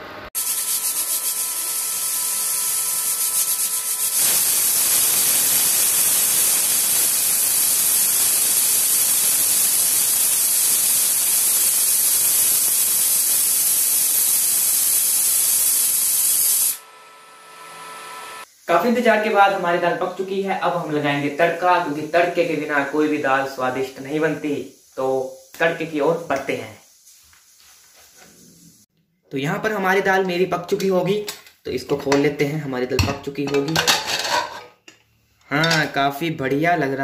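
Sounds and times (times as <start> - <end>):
pressure cooker whistle hissing: 0.4 - 18.8.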